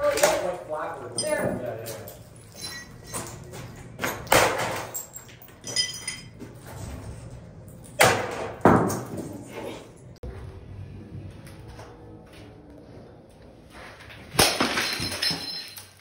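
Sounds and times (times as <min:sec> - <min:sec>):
clattering pieces: 0:14.3 - 0:16.0.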